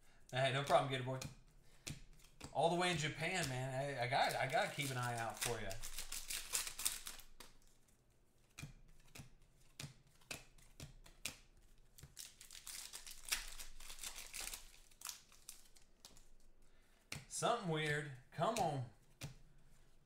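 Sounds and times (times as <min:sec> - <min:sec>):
cards clicking: 0:00.6 - 0:07.6, 0:08.4 - 0:16.4, 0:17.0 - 0:19.4
foil wrappers crinkling and tearing: 0:03.2 - 0:07.7, 0:12.0 - 0:16.4.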